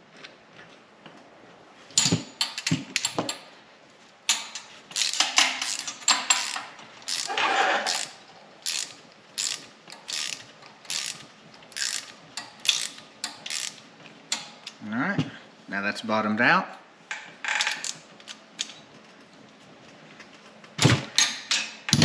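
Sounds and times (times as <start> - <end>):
ratcheting wrench clicking: 4.3 - 14.8, 17.5 - 18.7.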